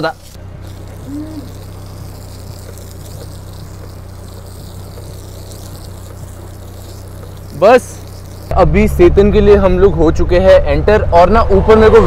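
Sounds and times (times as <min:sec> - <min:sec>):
hose spraying water: 0:00.0 - 0:08.6
low hum: 0:00.2 - 0:12.0.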